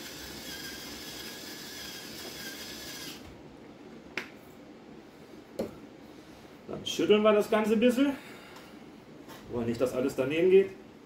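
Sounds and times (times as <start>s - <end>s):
electric grinder whirring: 0.0s - 3.3s.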